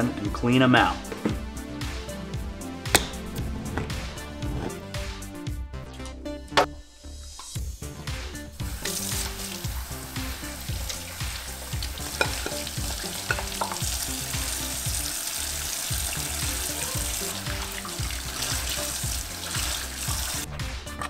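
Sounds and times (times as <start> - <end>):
tap running into a metal sink: 11.7 - 14.5.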